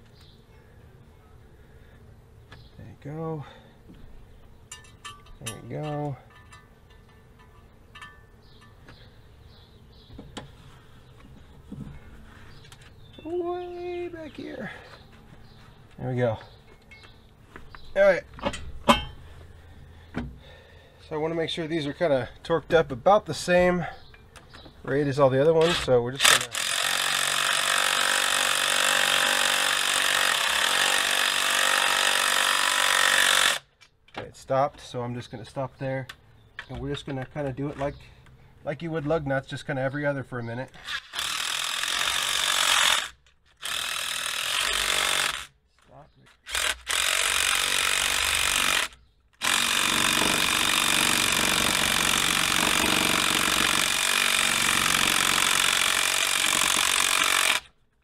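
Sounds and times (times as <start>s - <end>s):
cordless power tool whining: 25.6s - 33.7s, 40.8s - 45.5s, 46.4s - 57.8s
impact gun hammering nuts: 46.6s - 57.7s.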